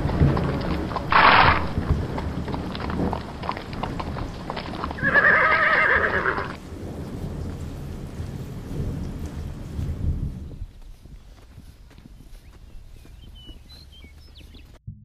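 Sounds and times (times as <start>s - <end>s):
horses galloping hoofbeats: 0.0s - 14.8s
horse whinnying: 1.1s - 1.8s, 4.6s - 6.6s.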